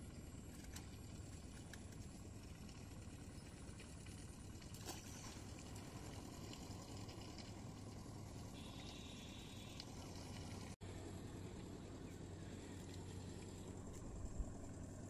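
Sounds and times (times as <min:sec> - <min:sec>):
faint low rumble: 0:00.0 - 0:15.0
fish splashing out of water: 0:04.6 - 0:07.6.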